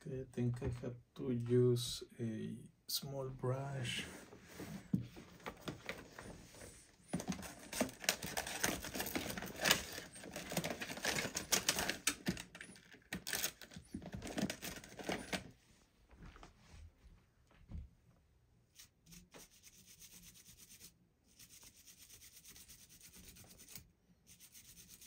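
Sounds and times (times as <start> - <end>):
small brush scrubbing metal: 18.7 - 25.0.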